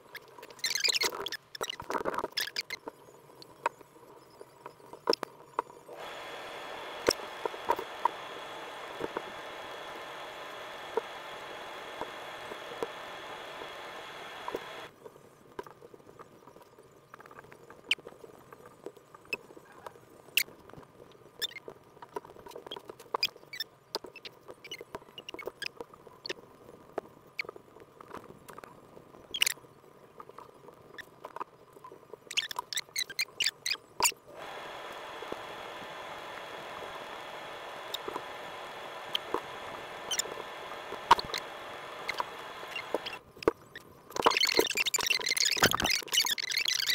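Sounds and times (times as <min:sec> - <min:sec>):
crochet hook clicking and squeaking: 0:44.2 - 0:46.9.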